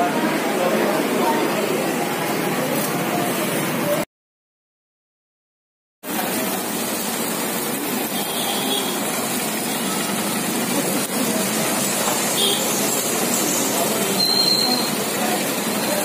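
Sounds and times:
food sizzling on griddle: 6.0s - 16.0s
gas burner roar: 6.0s - 16.0s.

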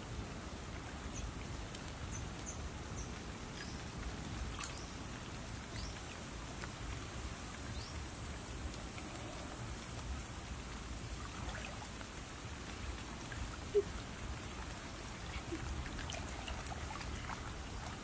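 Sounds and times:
stream water splashing: 0.0s - 18.0s.

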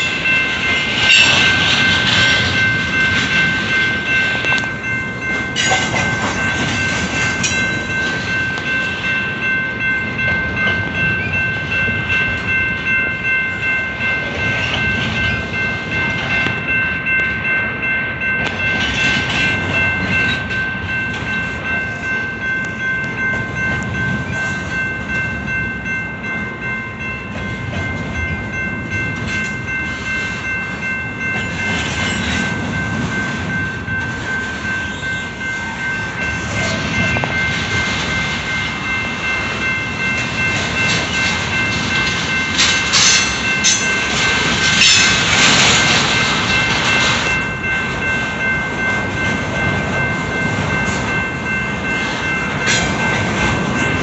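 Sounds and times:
freight train wheels rumbling: 0.0s - 54.0s
rhythmic clatter of train cars: 0.0s - 54.0s.

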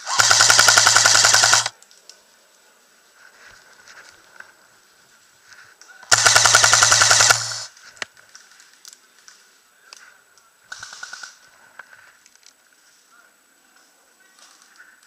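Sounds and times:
airsoft gun full-auto burst: 0.0s - 1.7s, 6.1s - 7.7s
motor hum: 0.0s - 1.7s, 6.1s - 7.7s.

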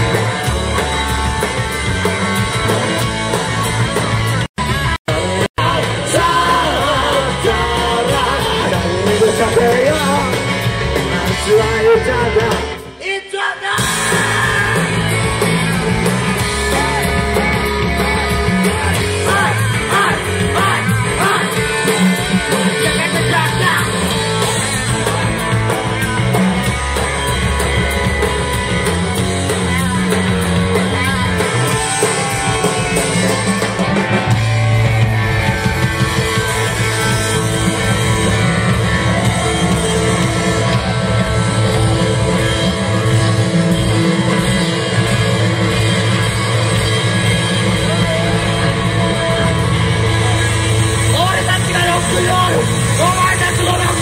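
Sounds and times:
drums: 0.0s - 54.0s
electric guitar: 0.0s - 54.0s
lead singer: 5.1s - 27.4s, 46.4s - 54.0s.

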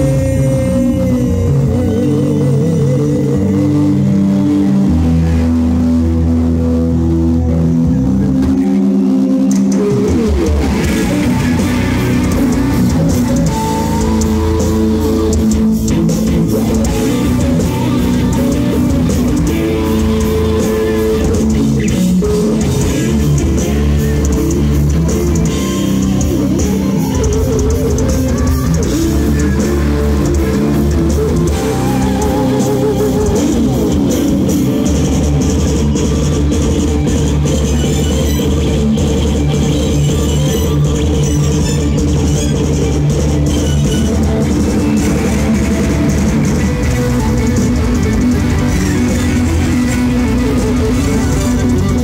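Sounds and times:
bass guitar: 0.0s - 52.0s
distorted electric guitars: 0.0s - 52.0s
drum kit: 0.0s - 52.0s.

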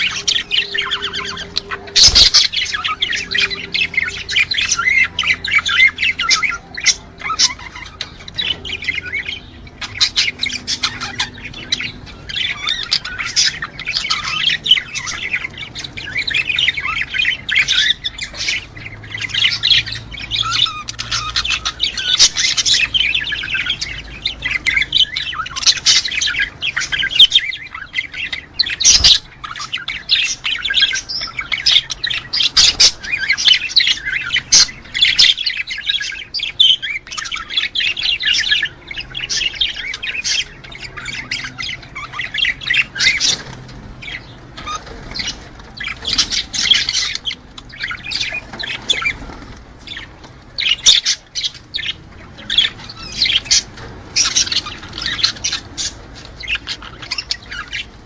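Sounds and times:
budgerigar squawks: 0.0s - 23.9s
budgerigars chattering and warbling: 0.0s - 58.0s.

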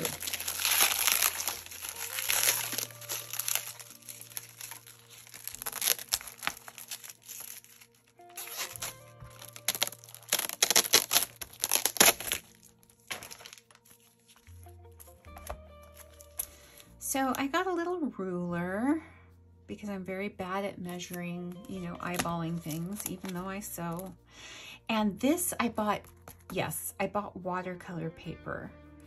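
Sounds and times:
plastic packaging crinkling: 0.0s - 16.8s, 21.6s - 24.1s
soft background music: 0.0s - 29.0s.

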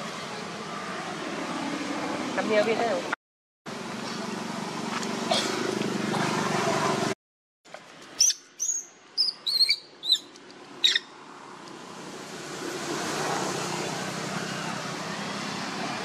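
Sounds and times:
high-pitched chirping calls: 8.2s - 11.1s.

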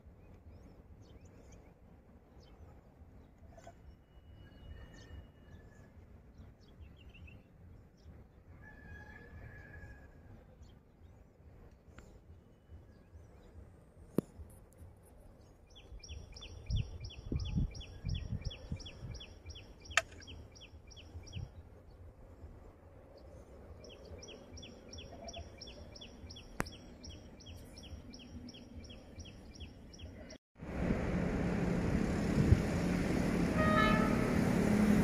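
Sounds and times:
wind rumble on microphone: 15.8s - 19.6s, 20.7s - 24.6s, 30.6s - 35.0s.

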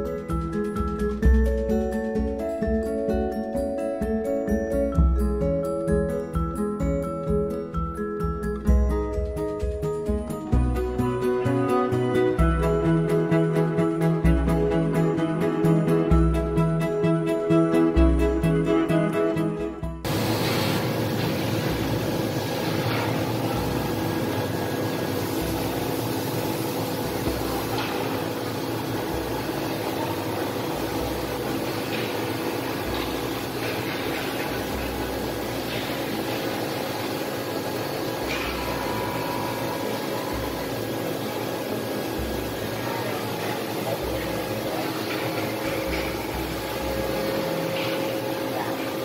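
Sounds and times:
background music: 0.0s - 20.1s
woodworking machinery humming: 20.0s - 49.0s.

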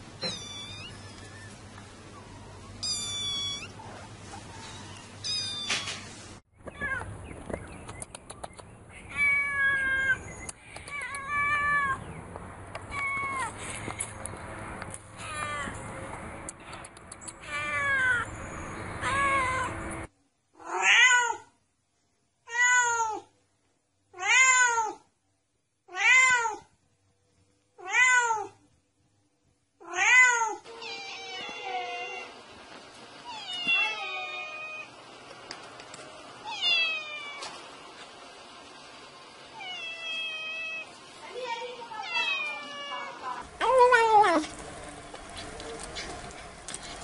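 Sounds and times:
cat meowing: 0.2s - 1.3s, 2.8s - 3.8s, 4.6s - 6.0s, 9.1s - 10.2s, 17.4s - 18.3s, 20.6s - 21.5s, 24.2s - 25.0s, 25.9s - 26.7s, 27.8s - 28.6s, 29.8s - 32.3s, 33.2s - 34.9s, 36.4s - 37.6s, 39.6s - 40.9s, 41.9s - 43.4s.

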